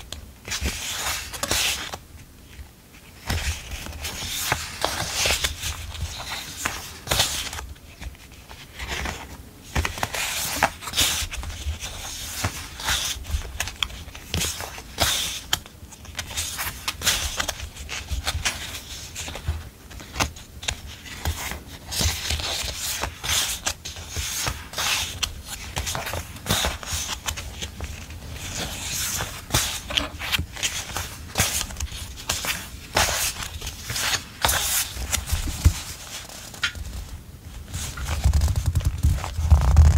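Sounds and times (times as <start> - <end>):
paper sheets rustling: 0.0 - 39.9.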